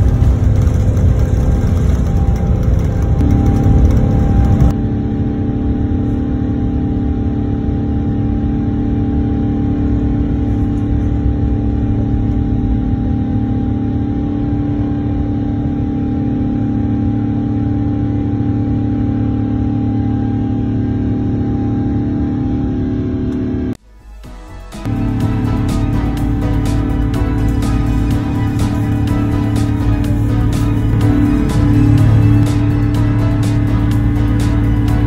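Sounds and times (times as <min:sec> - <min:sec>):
rough rumble: 0:00.0 - 0:05.7, 0:24.8 - 0:35.0
jet engine drone in cabin: 0:00.0 - 0:35.0.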